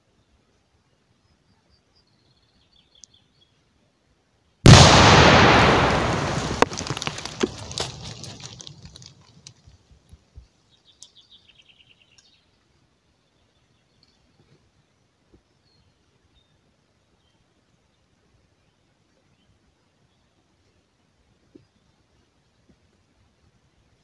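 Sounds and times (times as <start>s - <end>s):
explosion blast: 4.7s - 8.7s
rumble: 4.7s - 9.4s
stones and debris falling: 4.7s - 9.7s.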